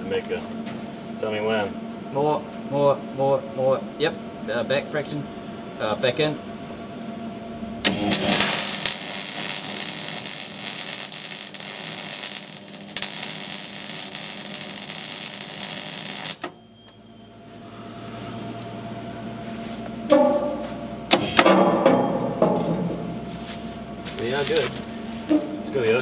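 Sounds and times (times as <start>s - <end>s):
welding arc crackling: 7.8s - 16.5s.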